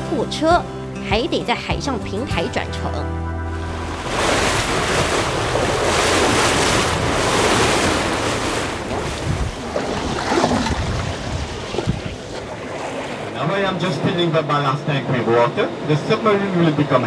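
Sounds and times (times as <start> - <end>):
waves washing: 3.4 - 17.0
wind buffeting microphone: 3.6 - 14.3.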